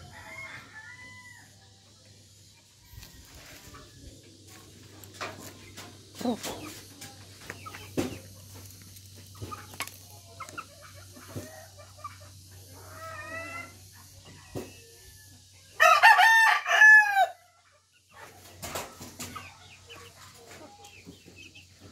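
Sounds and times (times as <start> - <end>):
rooster crowing: 0.0 - 1.6, 15.8 - 17.5.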